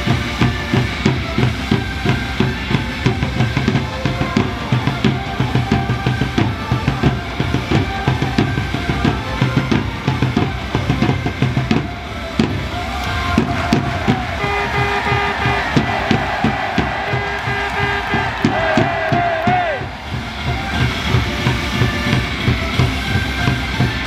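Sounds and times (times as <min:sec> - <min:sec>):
heavy drum beat: 0:00.0 - 0:24.0
upbeat cheer song: 0:00.0 - 0:24.0.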